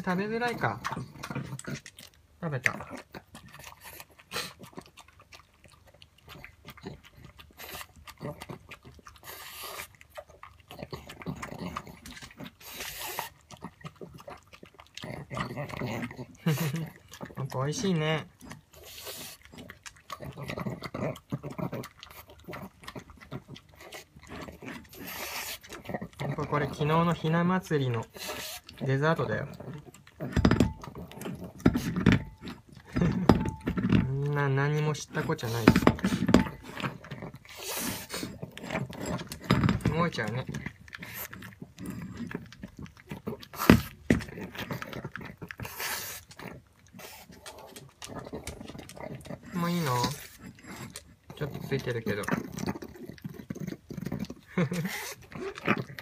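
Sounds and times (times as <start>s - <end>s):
dog licking and smacking: 0.0s - 56.0s
dog snuffling: 18.8s - 19.6s, 24.8s - 25.8s, 35.3s - 38.6s.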